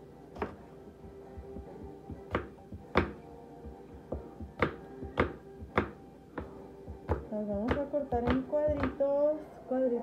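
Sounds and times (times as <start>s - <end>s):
knife striking cutting board: 1.4s - 3.2s, 4.1s - 6.5s.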